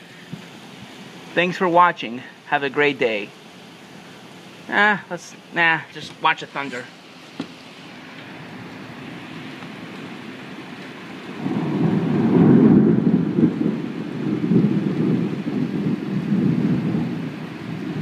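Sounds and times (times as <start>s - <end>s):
heavy rain hissing: 0.0s - 18.0s
thunder rumbling: 8.3s - 18.0s.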